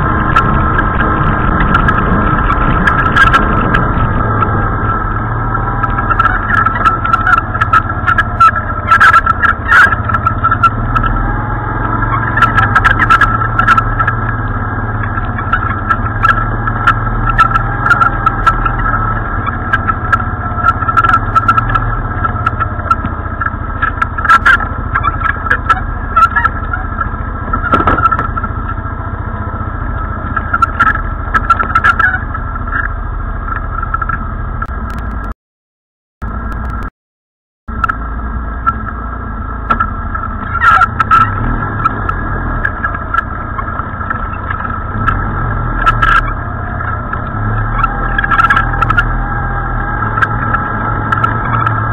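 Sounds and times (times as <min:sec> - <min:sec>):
atv engine running: 0:00.0 - 0:35.3, 0:36.2 - 0:36.9, 0:37.7 - 0:51.9
knocks and rattles from bumps: 0:27.5 - 0:28.6.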